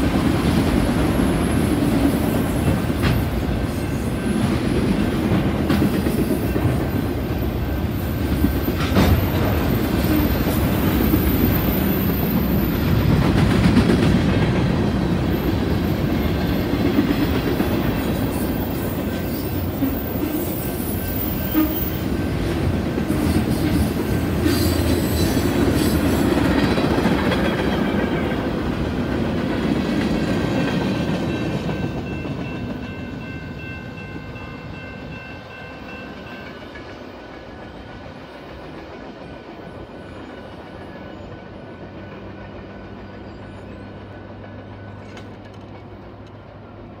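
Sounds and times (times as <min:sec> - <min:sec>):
freight train wheels clicking on rails: 0:00.0 - 0:47.0.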